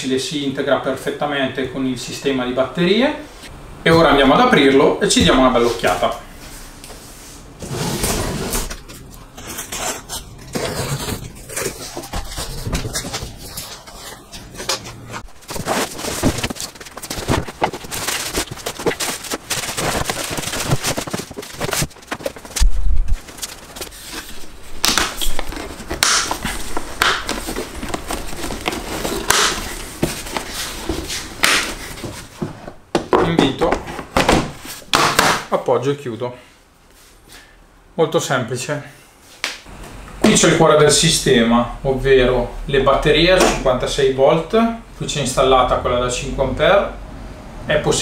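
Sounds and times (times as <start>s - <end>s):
cardboard flaps rustling: 8.0s - 35.4s
cardboard scrapes and knocks: 9.4s - 24.5s
packing tape being slit: 15.4s - 30.6s.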